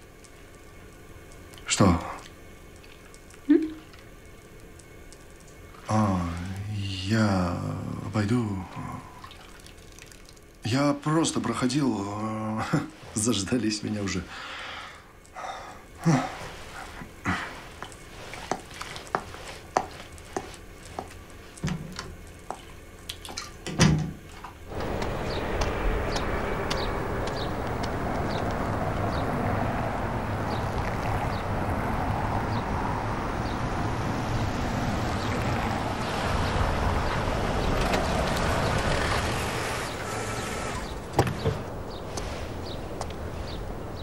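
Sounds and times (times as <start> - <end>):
water drips: 0.0 - 6.8, 8.2 - 11.6, 16.9 - 23.7, 24.7 - 39.1
bath water sloshing: 9.0 - 10.6, 16.1 - 23.6
steady rushing outdoor noise: 24.6 - 44.0.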